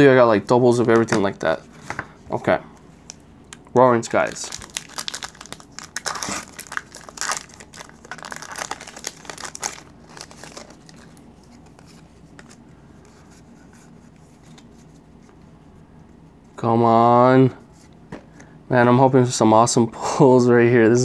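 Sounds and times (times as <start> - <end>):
foil wrapper crinkling and tearing: 4.1 - 12.6.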